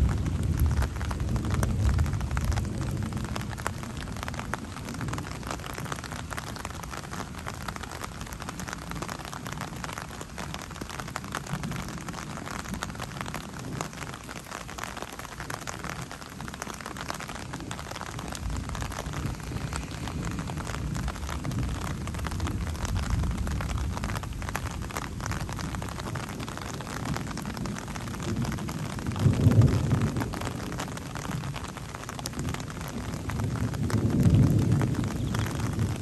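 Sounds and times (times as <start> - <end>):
low thunder rumble: 0.0 - 5.4, 17.4 - 31.6, 32.4 - 36.0
raindrops ticking close by: 0.0 - 36.0
steady rain falling: 0.0 - 36.0.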